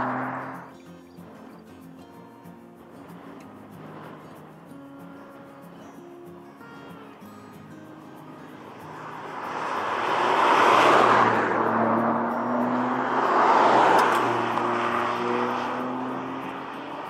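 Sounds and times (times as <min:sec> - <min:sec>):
car driving past at speed: 0:00.0 - 0:00.9, 0:08.5 - 0:17.0.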